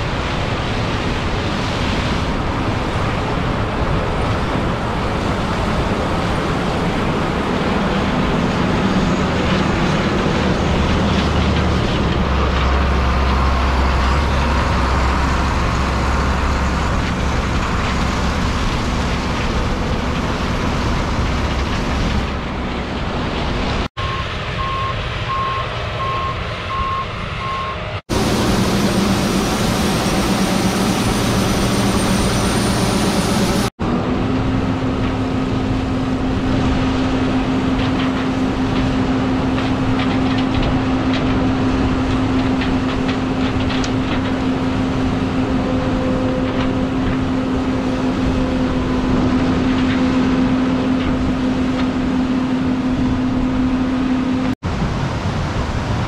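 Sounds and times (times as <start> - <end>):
combine harvester running: 0.0 - 56.0
repeated beep: 24.0 - 27.8.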